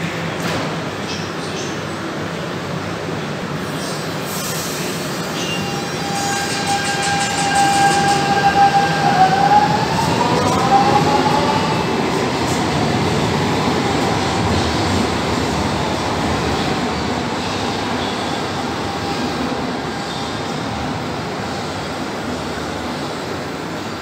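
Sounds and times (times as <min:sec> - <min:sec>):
train rumble: 0:02.0 - 0:24.0
electric train whine rising: 0:05.6 - 0:14.7.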